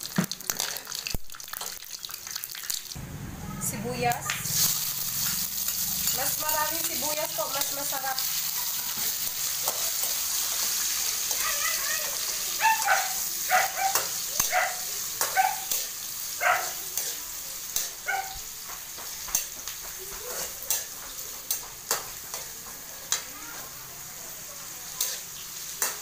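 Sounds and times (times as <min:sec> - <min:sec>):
onions sizzling in oil: 0:00.0 - 0:26.0
dog barking: 0:12.6 - 0:15.8, 0:16.4 - 0:16.8, 0:18.0 - 0:18.4
metal spatula clicking on pan: 0:15.2 - 0:15.9, 0:17.0 - 0:18.0, 0:20.6 - 0:20.9, 0:21.5 - 0:22.5, 0:25.0 - 0:25.2, 0:25.8 - 0:26.0.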